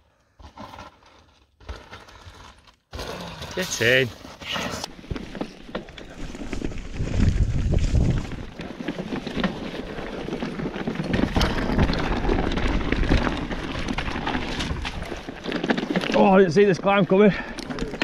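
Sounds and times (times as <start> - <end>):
bike rattling: 0.4 - 18.0
tyres crackling on gravel: 0.5 - 18.0
wind buffeting microphone: 6.6 - 8.5.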